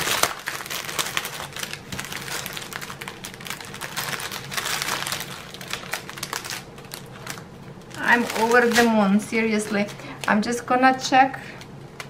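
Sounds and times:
crinkling plastic bags: 0:00.0 - 0:10.4.

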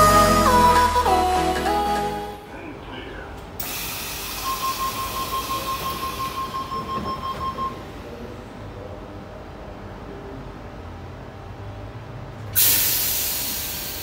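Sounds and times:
intro music: 0:00.0 - 0:02.5
door-closing warning tone: 0:04.2 - 0:07.9.

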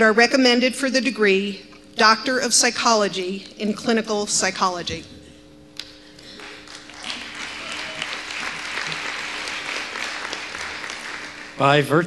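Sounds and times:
audience applauding: 0:06.2 - 0:12.0.

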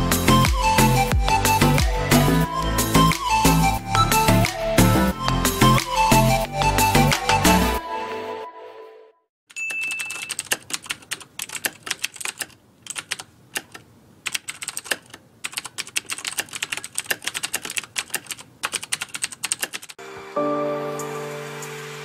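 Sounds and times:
keyboard key clicks: 0:09.6 - 0:19.9.

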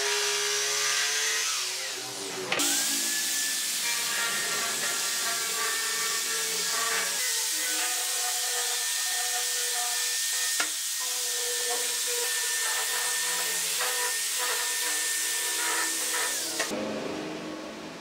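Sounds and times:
angle grinder sanding wood: 0:00.0 - 0:16.7.

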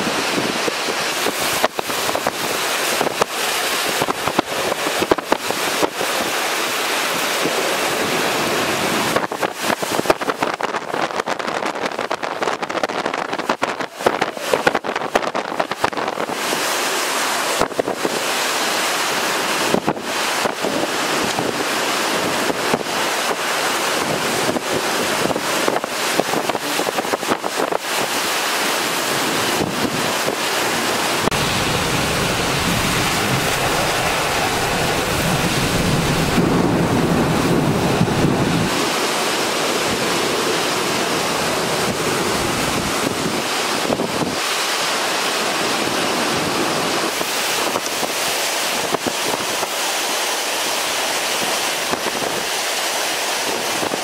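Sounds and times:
wind and driving rain: 0:00.0 - 0:54.0
wind buffeting microphone: 0:29.0 - 0:40.7
deep rumble: 0:31.3 - 0:38.7.

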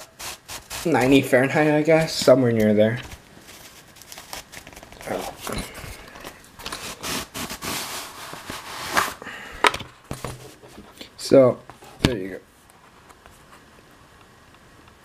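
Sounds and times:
fabric sleeve rustling and scraping: 0:03.0 - 0:09.2.

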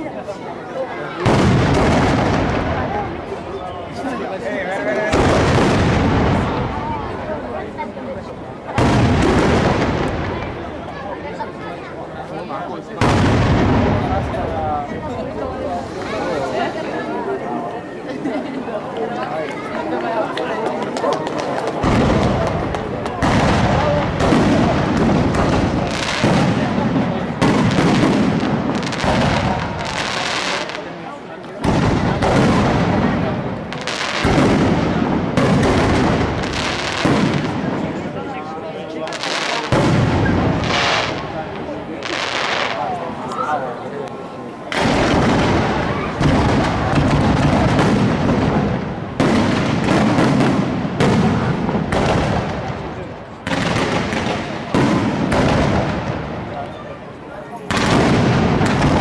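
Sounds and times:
firework booms: 0:01.1 - 0:03.5, 0:05.0 - 0:11.4, 0:12.9 - 0:16.9, 0:21.2 - 0:43.2, 0:44.7 - 0:56.7, 0:57.6 - 0:59.0.

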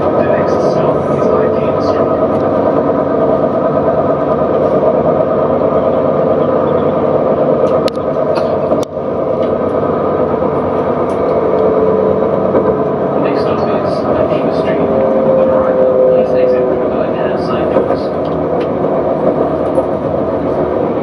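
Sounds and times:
tram running on rails: 0:00.0 - 0:21.0.

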